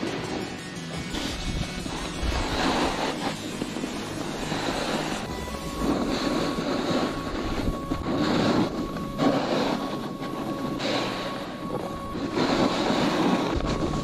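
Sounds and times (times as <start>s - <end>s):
snowboard scraping over snow: 0.0s - 14.0s
wind buffeting microphone: 1.2s - 14.0s.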